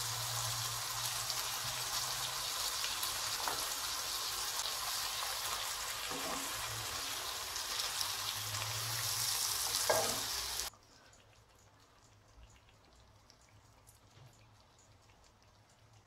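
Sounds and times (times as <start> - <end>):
tomatoes sizzling in a wok: 0.0 - 11.1
spatula scraping wok: 6.1 - 10.7.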